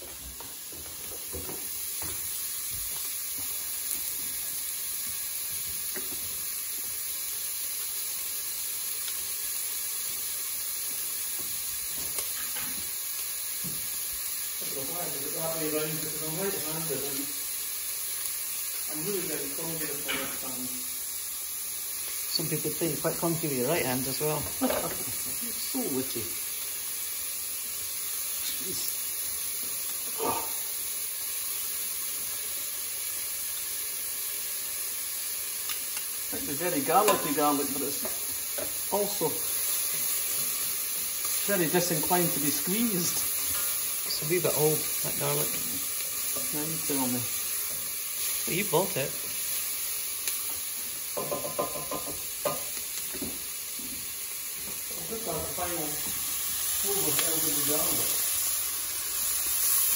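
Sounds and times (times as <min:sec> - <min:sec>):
onions sizzling in oil: 0:00.0 - 0:59.9
spatula stirring: 0:36.9 - 0:38.7.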